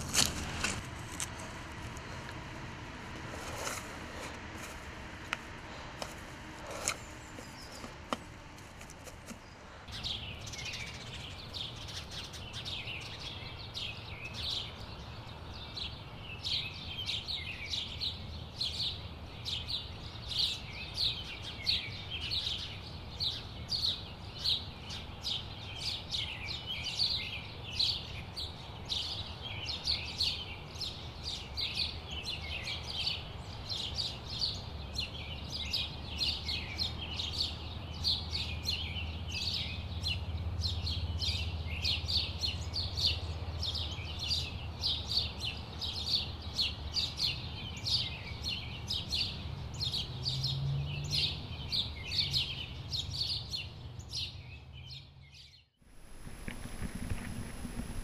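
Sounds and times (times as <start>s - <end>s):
low steady rumble: 0.0s - 9.9s
small birds chirping: 0.0s - 58.0s.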